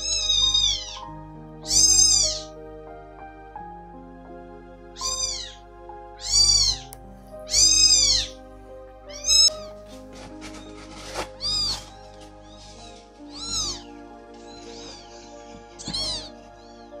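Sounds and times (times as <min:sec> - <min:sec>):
kittens meowing: 0:00.0 - 0:02.6, 0:05.0 - 0:05.6, 0:06.2 - 0:08.4, 0:09.0 - 0:09.8, 0:11.4 - 0:17.0
background music: 0:00.0 - 0:17.0.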